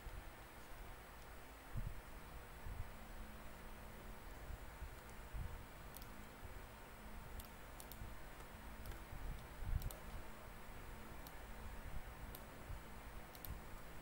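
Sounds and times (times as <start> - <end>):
faint steady hiss: 0.0 - 14.0
computer mouse clicks: 4.9 - 5.2, 5.9 - 6.2, 7.3 - 10.3, 11.2 - 11.4, 12.3 - 12.5, 13.3 - 13.9.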